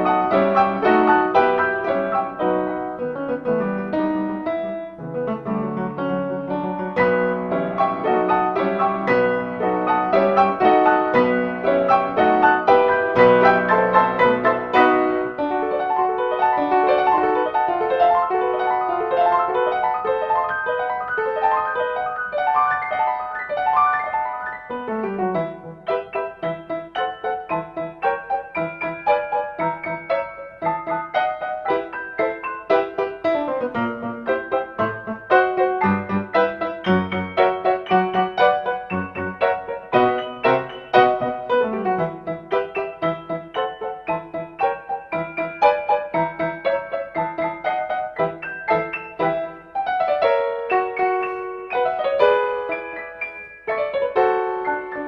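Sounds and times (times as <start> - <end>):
classical solo piano: 0.0 - 55.0.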